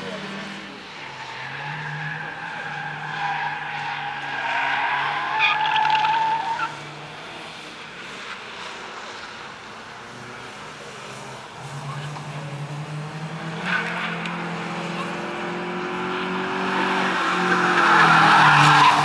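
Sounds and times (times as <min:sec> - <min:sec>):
tyres squealing: 0:01.0 - 0:06.7.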